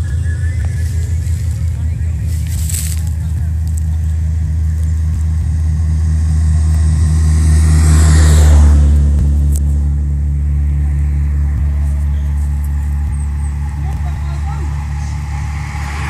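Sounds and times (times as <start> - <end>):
low engine hum: 0.0 - 16.0
vehicle passing by: 0.0 - 16.0.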